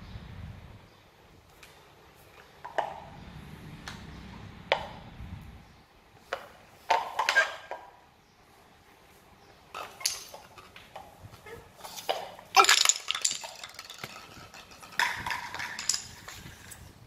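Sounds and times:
plastic toys clattering on tile floor: 6.3 - 8.0, 9.7 - 17.0.

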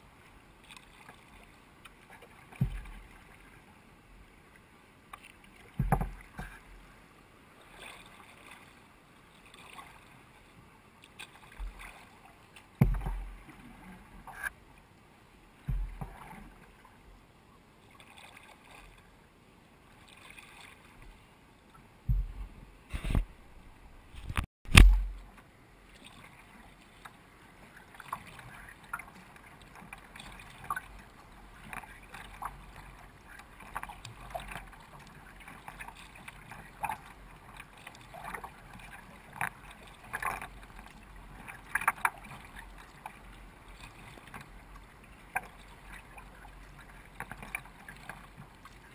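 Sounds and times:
paddle stroke splashes: 0.0 - 14.6, 15.6 - 17.0, 17.8 - 19.1, 19.9 - 48.9
water lapping along kayak hull: 0.0 - 48.9
low thumps: 22.1 - 25.2.

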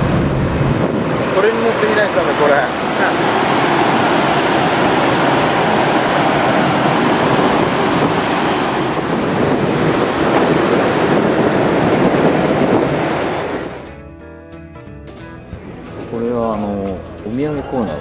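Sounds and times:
wind buffeting microphone: 0.0 - 13.9
sea rushing: 0.0 - 14.0.

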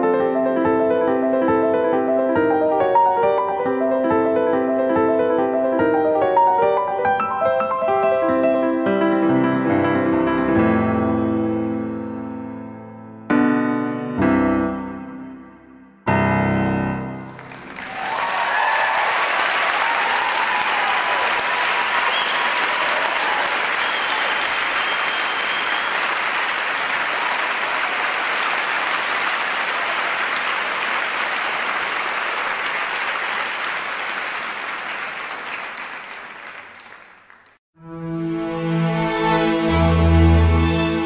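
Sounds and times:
audience applause: 17.2 - 37.6.

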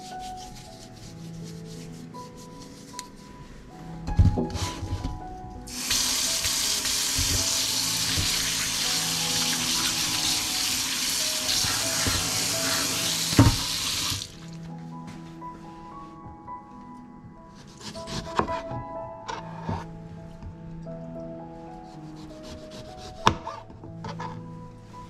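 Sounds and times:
tap water splashing into sink: 5.8 - 14.4.

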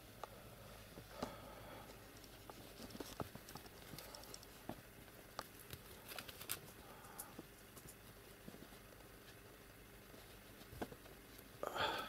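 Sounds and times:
kitten paws tapping and scuffling: 1.9 - 11.6.

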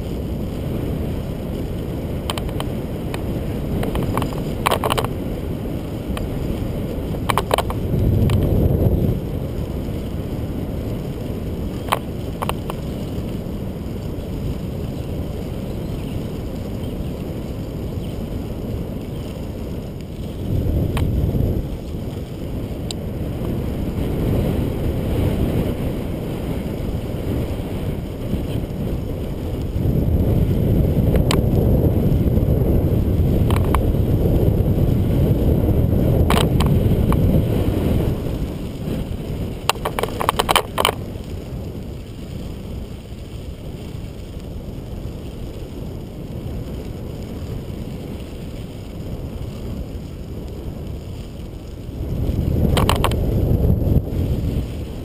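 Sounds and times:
bicycle tyres rolling on gravel: 0.0 - 55.0
wind rumbling on microphone: 0.0 - 55.0
sharp clicks and rattles: 2.2 - 5.2, 7.1 - 8.6, 11.7 - 13.0, 33.4 - 33.9, 36.2 - 37.3, 39.6 - 41.0, 52.6 - 53.4.

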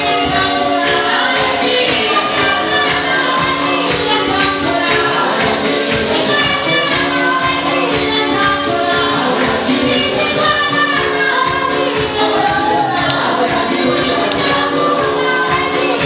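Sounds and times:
gospel choir singing: 0.0 - 16.0
percussion beat: 0.0 - 16.0.

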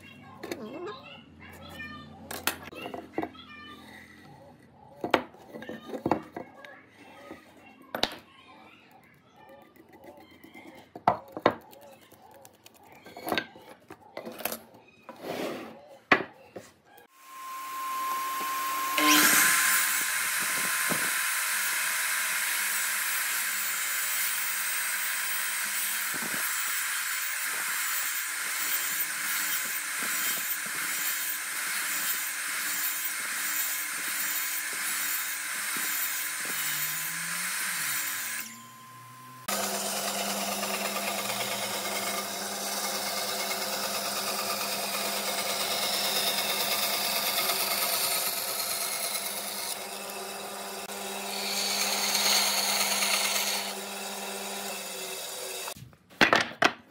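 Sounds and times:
miter saw cutting wood: 17.0 - 55.8
band saw running: 17.2 - 55.8.

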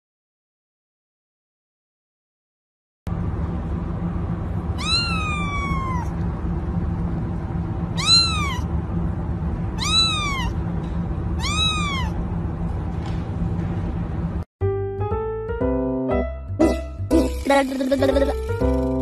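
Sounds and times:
low background hum: 3.1 - 14.5, 16.6 - 19.0
kitten meowing: 4.8 - 6.2, 7.9 - 8.7, 9.8 - 10.6, 11.4 - 12.2.

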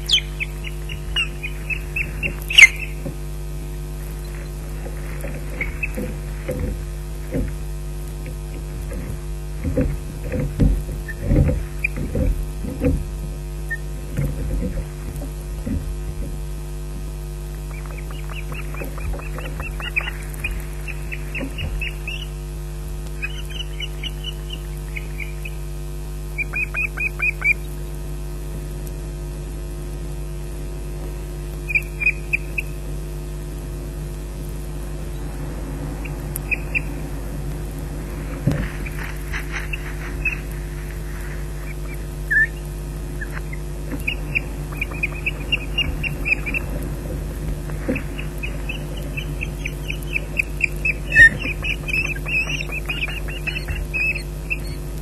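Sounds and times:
ospreys whistling calls: 0.0 - 9.1, 11.0 - 12.9, 13.6 - 15.0, 17.6 - 22.5, 23.1 - 27.8, 31.6 - 33.0, 34.7 - 55.0
rustle: 0.0 - 55.0
steady low hum: 0.0 - 55.0.

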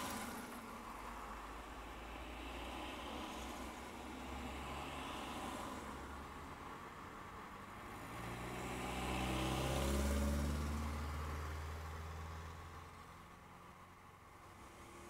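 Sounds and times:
vehicle driving past: 8.0 - 12.7.

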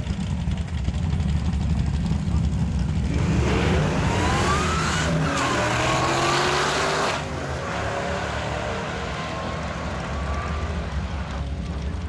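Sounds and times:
racing cars accelerating: 3.0 - 11.8.

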